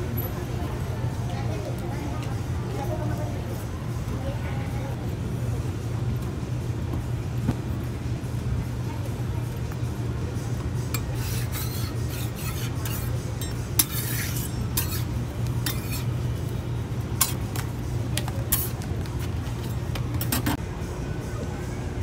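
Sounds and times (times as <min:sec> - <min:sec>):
spatulas scraping a griddle: 0:10.9 - 0:16.2, 0:17.2 - 0:17.6, 0:18.4 - 0:20.6.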